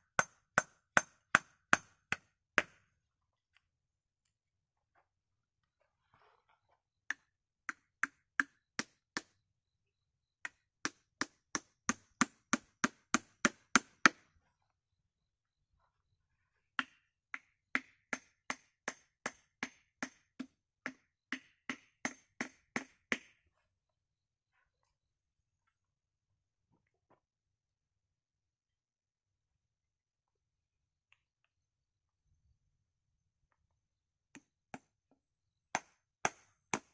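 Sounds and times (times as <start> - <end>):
hatchet knocking on wood: 0.2 - 2.8, 7.1 - 9.3, 10.4 - 14.2, 17.7 - 23.3, 35.8 - 36.9.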